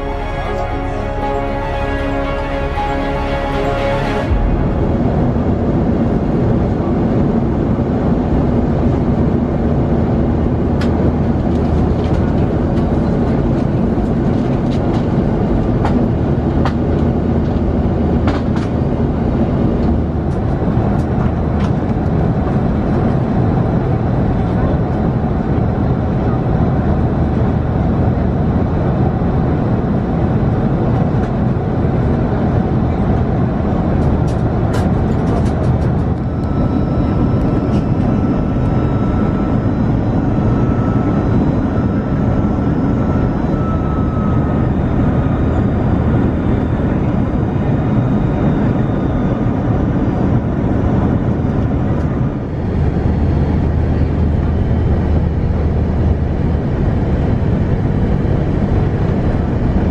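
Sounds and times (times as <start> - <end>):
faint high whine: 0.0 - 7.5, 36.0 - 51.3
aircraft cabin engine and airflow noise: 0.0 - 59.9.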